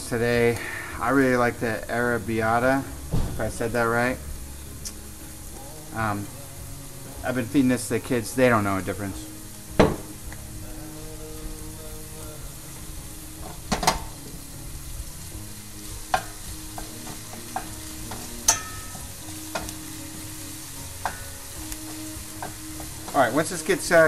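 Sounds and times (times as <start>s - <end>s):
onions sizzling in oil: 0.0s - 24.0s
spatula scraping a pan: 16.0s - 23.4s.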